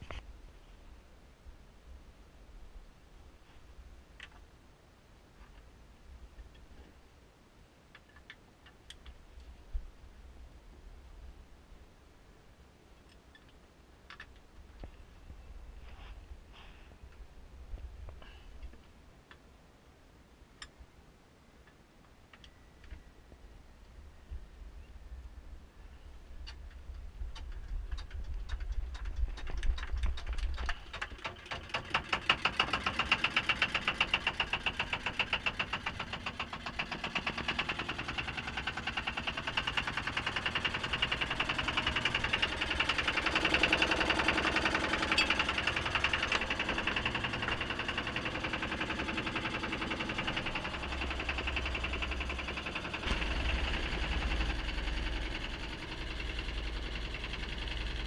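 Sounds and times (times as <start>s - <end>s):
boat engine knocking: 27.9s - 58.0s.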